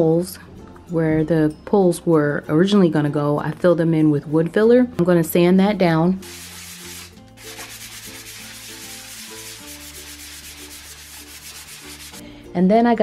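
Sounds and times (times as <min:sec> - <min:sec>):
sandpaper rasping on wood: 0:06.2 - 0:12.2.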